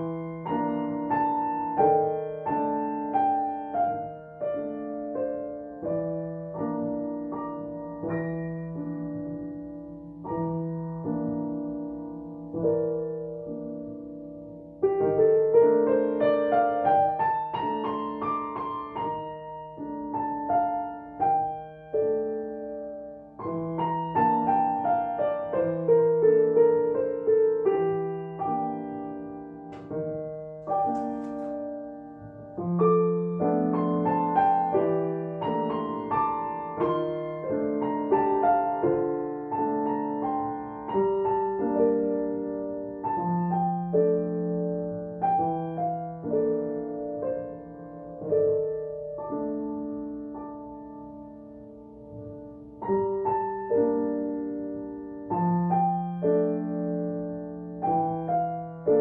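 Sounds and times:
slow piano duet: 0:00.0 - 0:59.0.

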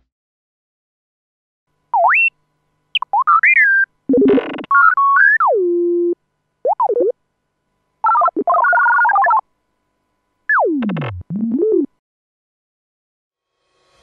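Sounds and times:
synthesized robot chirps and beeps: 0:02.0 - 0:02.3, 0:03.0 - 0:05.6, 0:06.6 - 0:07.1, 0:08.0 - 0:09.4, 0:10.5 - 0:11.9.

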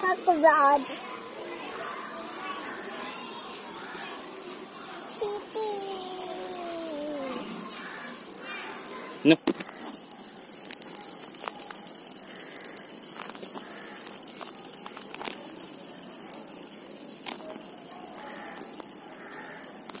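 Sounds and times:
toy vibration motor: 0:00.0 - 0:20.0.

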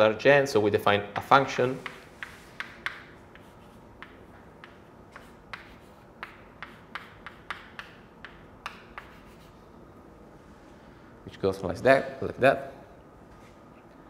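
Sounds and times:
chalk tapping on blackboard: 0:01.2 - 0:09.6.

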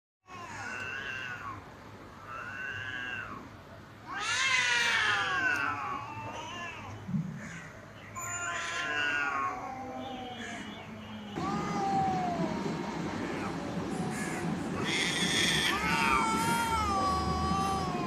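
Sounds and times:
cats yowling: 0:00.3 - 0:07.6, 0:08.2 - 0:10.7, 0:14.1 - 0:18.0.

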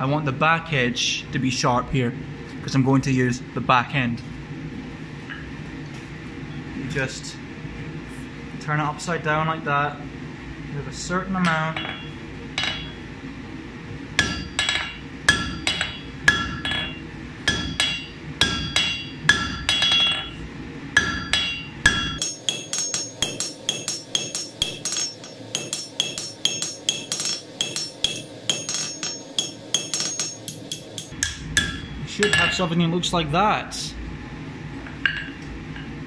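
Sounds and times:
hammer striking steel on anvil: 0:11.5 - 0:13.0, 0:14.2 - 0:20.4, 0:21.0 - 0:32.6.

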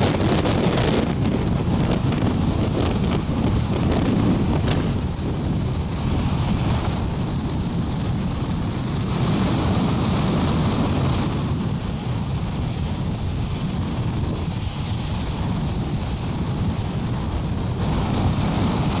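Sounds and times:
sea surf breaking: 0:00.0 - 0:19.0
wind buffeting microphone: 0:00.0 - 0:19.0.

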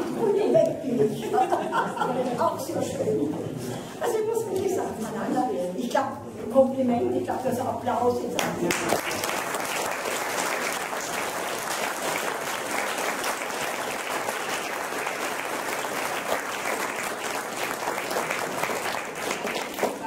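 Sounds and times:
audience applauding: 0:08.6 - 0:20.0.

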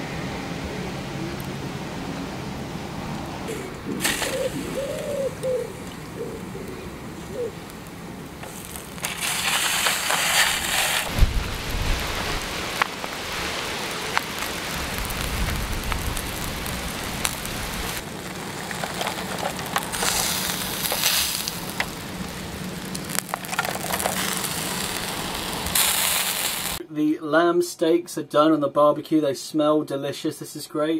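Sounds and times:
meat sizzling on a grill: 0:04.0 - 0:05.3, 0:07.3 - 0:26.8.

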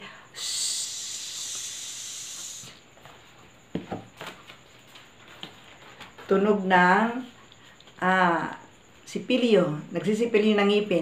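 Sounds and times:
woman hissing through teeth: 0:00.3 - 0:02.8.

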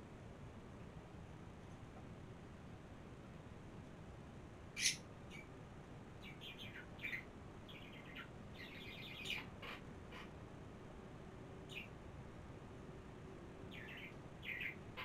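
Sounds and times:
bird chirping: 0:04.8 - 0:05.5, 0:06.2 - 0:10.3, 0:11.7 - 0:12.0, 0:13.7 - 0:15.0.

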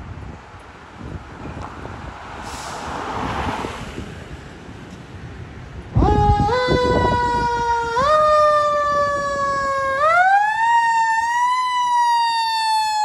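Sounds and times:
truck engine rumbling: 0:00.0 - 0:13.0
fire engine siren wailing: 0:05.9 - 0:13.0.

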